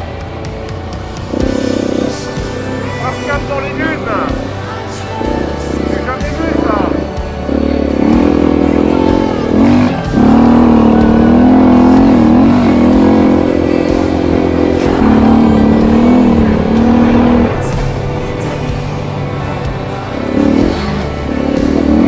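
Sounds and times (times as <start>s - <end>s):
motorcycle engine revving: 0.0s - 22.0s.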